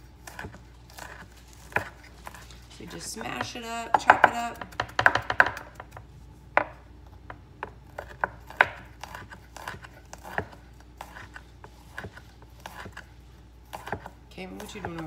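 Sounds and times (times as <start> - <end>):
knife chopping on wooden board: 0.2 - 2.4, 3.3 - 13.1, 13.7 - 15.0.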